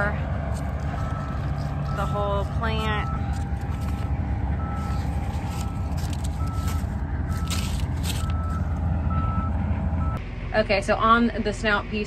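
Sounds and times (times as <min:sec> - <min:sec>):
harvest machinery rumbling: 0:00.0 - 0:10.5
dry corn leaves rustling: 0:00.1 - 0:08.9
warning alarm beeping: 0:00.9 - 0:03.4, 0:04.5 - 0:07.5.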